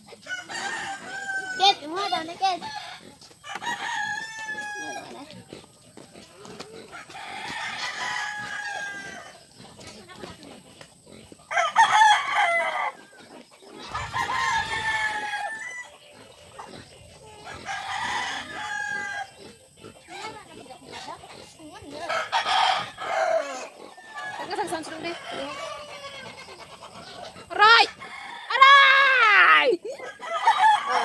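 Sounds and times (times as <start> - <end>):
rooster crowing: 0.3 - 5.1, 6.9 - 9.4, 11.5 - 13.2, 13.9 - 15.9, 17.5 - 19.3, 22.1 - 26.3, 27.6 - 29.4, 30.0 - 31.0.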